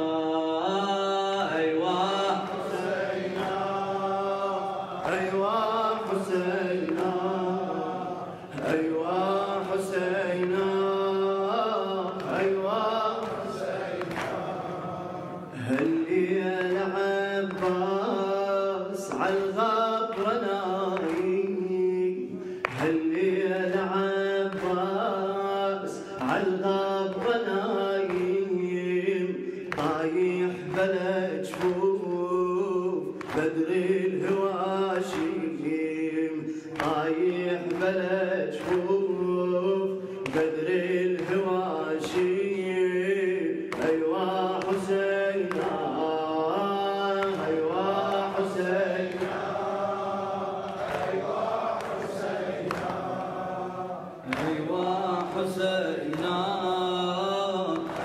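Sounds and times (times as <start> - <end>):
men chanting a lament: 0.0 - 58.0.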